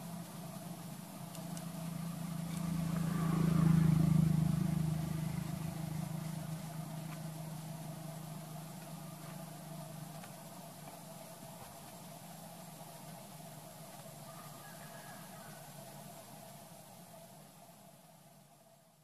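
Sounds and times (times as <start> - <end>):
vehicle engine passing: 0.0 - 11.0.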